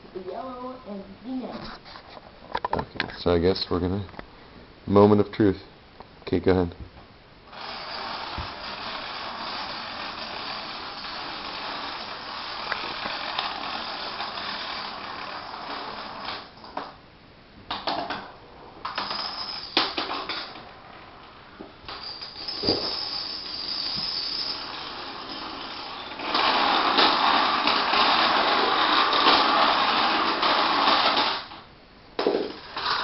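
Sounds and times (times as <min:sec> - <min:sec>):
dominoes toppling clatter: 0:07.6 - 0:16.9, 0:21.9 - 0:31.6, 0:32.2 - 0:33.0.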